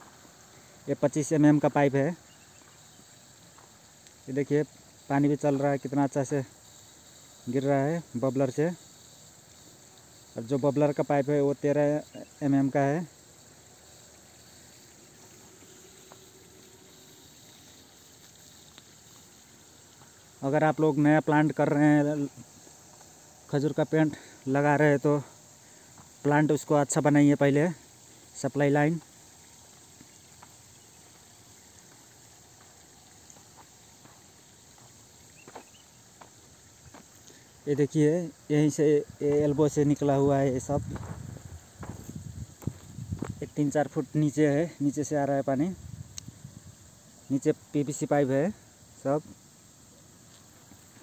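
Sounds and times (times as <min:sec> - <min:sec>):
insects chirring: 0:00.0 - 0:51.0
soft footsteps on dirt: 0:02.4 - 0:03.8, 0:22.4 - 0:23.4, 0:25.9 - 0:26.2, 0:29.8 - 0:37.4, 0:40.6 - 0:43.6.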